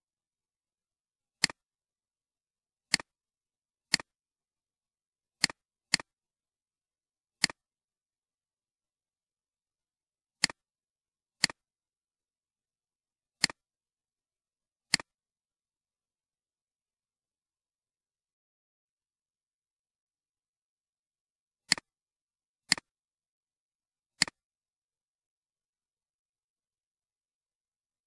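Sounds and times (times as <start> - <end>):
computer mouse clicking: 1.4 - 1.6, 2.9 - 3.1, 3.9 - 4.1, 5.4 - 6.1, 7.4 - 7.6, 10.4 - 10.6, 11.4 - 11.6, 13.4 - 13.6, 14.9 - 15.1, 21.7 - 21.9, 22.7 - 22.9, 24.2 - 24.4.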